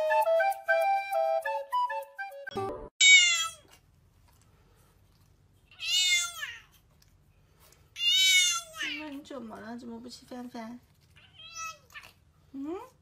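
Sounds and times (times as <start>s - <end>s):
flute tune: 0.0s - 2.9s
cat meowing loudly: 3.0s - 3.7s, 5.7s - 6.7s, 8.0s - 9.0s.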